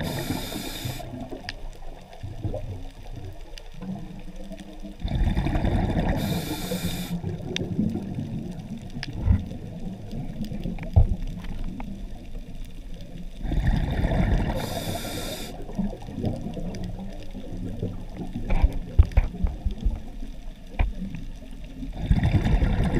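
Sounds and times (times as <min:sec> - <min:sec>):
regulator inhalation hiss: 0:00.0 - 0:01.2, 0:06.1 - 0:07.3, 0:14.5 - 0:15.8.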